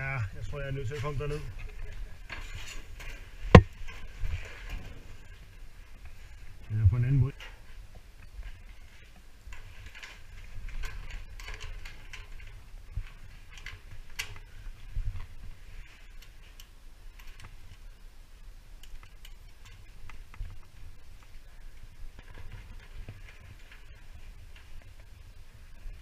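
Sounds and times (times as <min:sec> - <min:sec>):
small metallic clicks and taps: 0:18.8 - 0:21.4.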